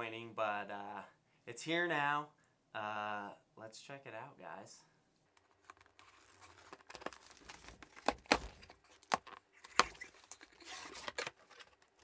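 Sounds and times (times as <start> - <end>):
cardboard crackling and rustling: 5.4 - 12.0
packing tape cut and torn: 5.4 - 12.0.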